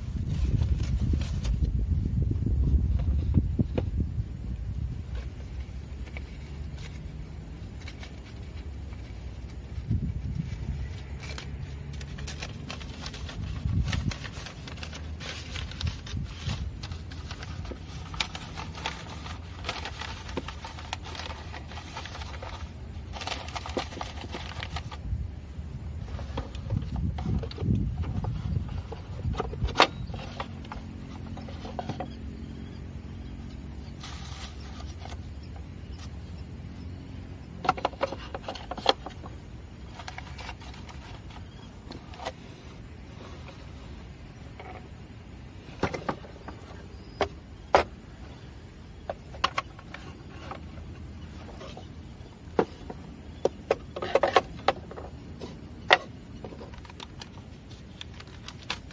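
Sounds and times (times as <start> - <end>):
low steady hum: 0.0 - 58.9
small clicks and scrapes: 5.1 - 25.0, 26.0 - 32.4, 37.6 - 45.0, 49.0 - 58.9
paper rustling: 5.2 - 25.0, 33.9 - 35.2, 55.5 - 58.9.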